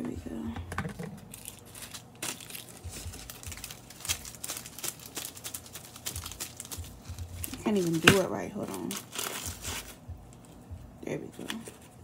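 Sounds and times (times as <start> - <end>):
packaging crinkling: 1.1 - 10.0.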